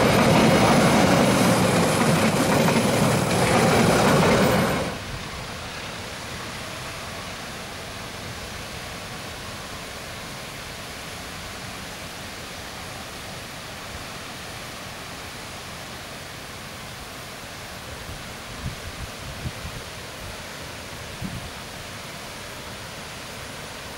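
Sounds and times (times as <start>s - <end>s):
steady rushing noise: 0.0s - 7.0s.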